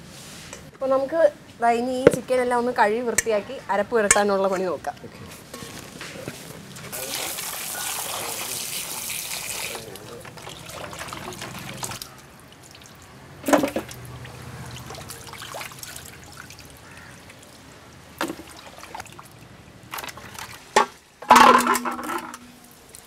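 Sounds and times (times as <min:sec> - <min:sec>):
water pouring and trickling: 0:06.5 - 0:23.0.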